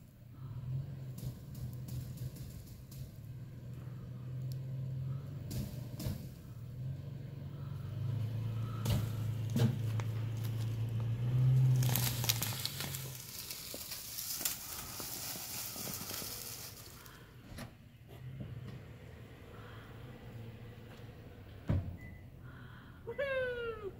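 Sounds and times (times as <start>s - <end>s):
truck engine running: 0.0s - 21.7s
bush crackling: 8.6s - 17.3s.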